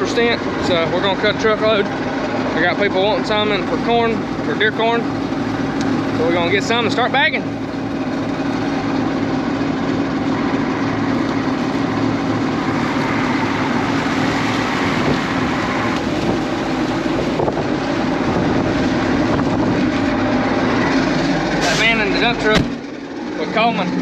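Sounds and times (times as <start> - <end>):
combine harvester engine droning: 0.0 - 24.0.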